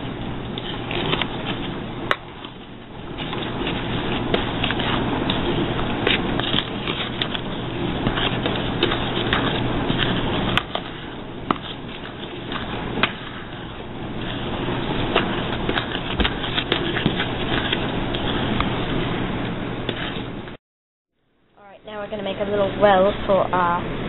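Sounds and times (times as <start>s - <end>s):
flour rustling: 0.0s - 19.2s.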